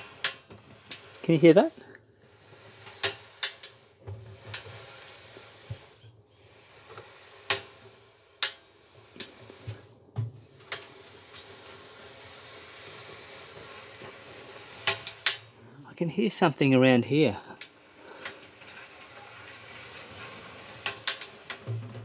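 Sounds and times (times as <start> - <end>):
clothes dryer drum turning: 0.0 - 22.0.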